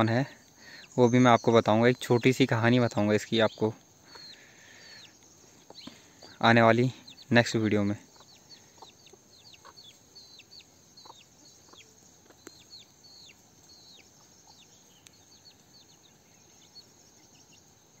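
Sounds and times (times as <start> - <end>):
chick peeping: 0.0 - 18.0
hens clucking softly: 7.8 - 14.7.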